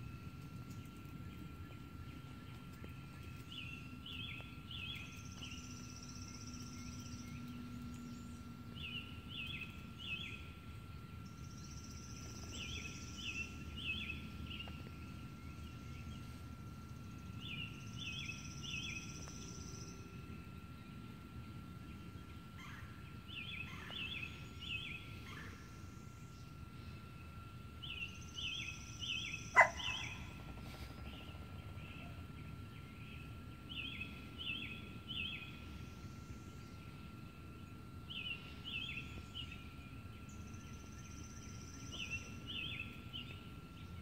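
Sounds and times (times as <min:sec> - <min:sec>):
faint steady hum: 0:00.0 - 0:44.0
high buzzy bird trill: 0:27.8 - 0:30.5.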